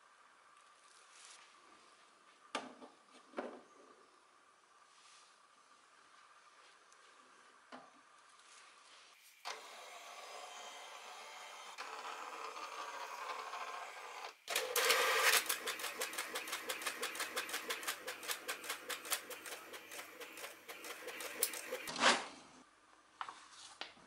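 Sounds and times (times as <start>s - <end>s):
printer whirring: 9.5s - 21.9s
fast even clicking of printing: 14.5s - 21.9s
paper drawn into printer: 14.5s - 22.3s.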